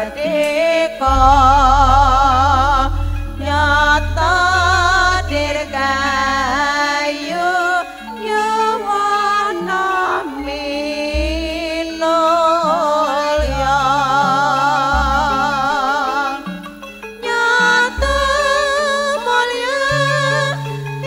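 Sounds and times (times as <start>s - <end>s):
woman singing with vibrato: 0.0s - 16.5s, 17.2s - 20.8s
band playing slow music: 1.0s - 7.0s
sustained bass line: 1.0s - 7.8s, 10.4s - 16.4s, 17.9s - 18.8s.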